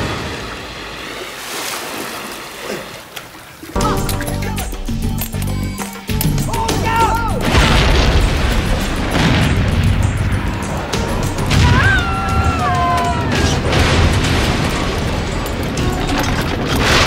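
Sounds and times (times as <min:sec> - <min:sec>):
dramatic music: 0:03.8 - 0:17.0
heavy booms: 0:07.4 - 0:11.8
falling wail: 0:11.5 - 0:13.8.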